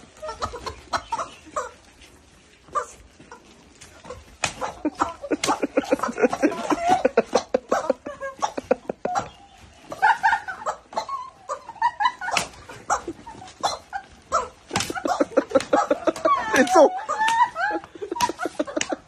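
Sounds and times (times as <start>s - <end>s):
broom swatting ground: 4.0s - 10.4s, 12.2s - 19.0s
women laughing loudly: 4.8s - 10.9s, 11.5s - 13.4s, 14.8s - 19.0s.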